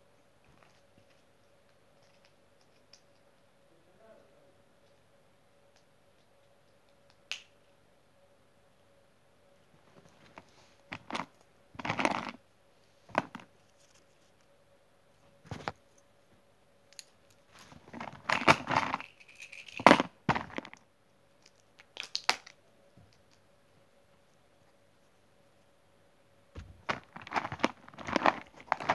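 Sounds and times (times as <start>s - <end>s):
faint steady hum: 0.0s - 28.9s
fabric and plastic handling noise: 9.9s - 12.4s, 13.1s - 14.4s, 15.3s - 15.8s, 17.4s - 19.0s, 19.8s - 20.8s, 26.6s - 28.9s.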